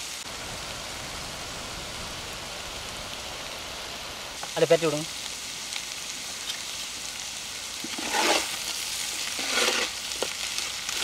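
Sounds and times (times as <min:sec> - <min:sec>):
stir-fry sizzling in iron pan: 0:00.0 - 0:11.0
metal spatula scraping pan: 0:07.8 - 0:08.6, 0:09.2 - 0:10.0.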